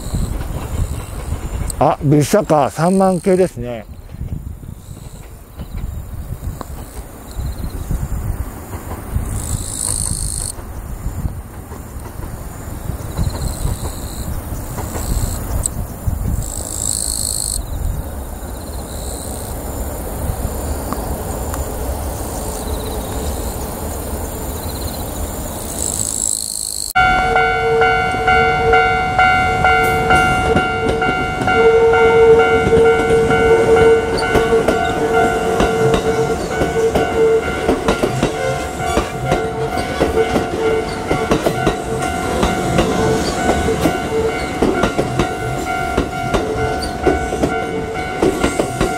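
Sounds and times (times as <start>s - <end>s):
train wheel clatter: 0.0s - 17.2s, 27.1s - 31.7s, 32.3s - 48.9s
low train rumble: 0.0s - 26.0s, 26.9s - 48.9s
train passing close: 0.0s - 48.9s.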